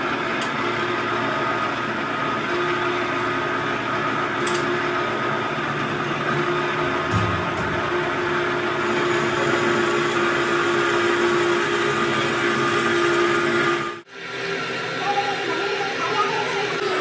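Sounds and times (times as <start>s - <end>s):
metal-cutting band saw running: 0.0s - 17.0s.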